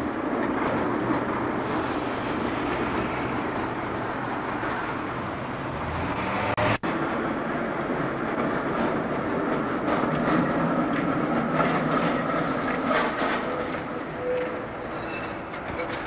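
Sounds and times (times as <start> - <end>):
tram wheels rumbling on rail: 0.0 - 16.0
thin wheel squeal: 3.2 - 6.6, 11.0 - 11.6, 14.2 - 16.0.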